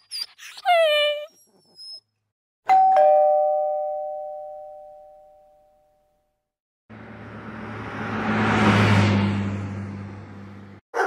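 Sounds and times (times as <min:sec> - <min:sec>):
two-tone doorbell chime: 0:02.7 - 0:06.3
vehicle approaching: 0:06.9 - 0:10.8.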